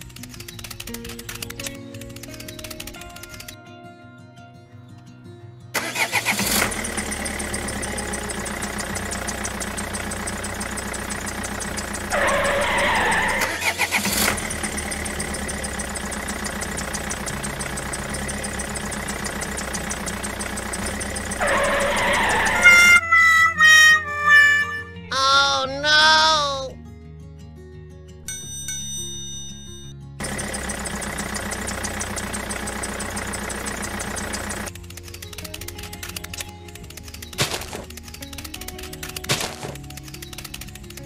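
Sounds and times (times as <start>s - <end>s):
tractor engine running: 0.0s - 3.6s, 5.8s - 24.6s, 30.2s - 41.0s
loud high-pitched noise: 12.1s - 14.5s, 21.3s - 23.0s.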